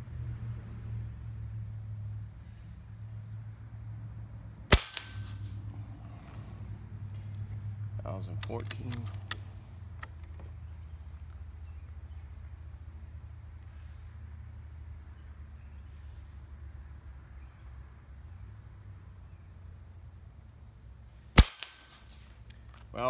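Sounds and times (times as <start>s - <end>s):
insects droning: 0.0s - 23.0s
air rifle shot: 4.7s - 5.6s, 21.4s - 22.1s.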